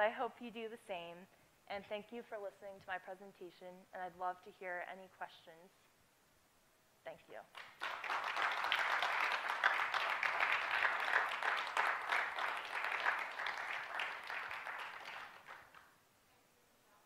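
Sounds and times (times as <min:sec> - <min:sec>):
audience applauding: 0:07.6 - 0:15.9.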